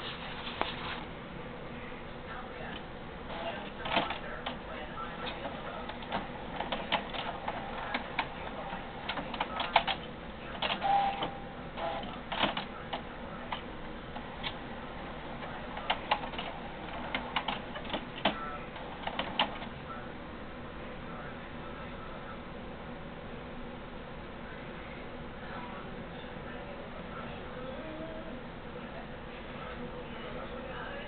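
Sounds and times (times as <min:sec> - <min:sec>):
printer hum: 0:00.0 - 0:31.0
printer tone: 0:02.7 - 0:20.0
printer mechanism clicking: 0:15.8 - 0:19.7.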